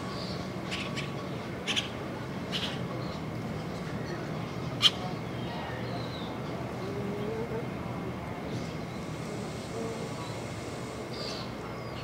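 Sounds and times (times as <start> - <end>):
faint distant voices: 0.0 - 12.0
steady background noise: 0.0 - 12.0.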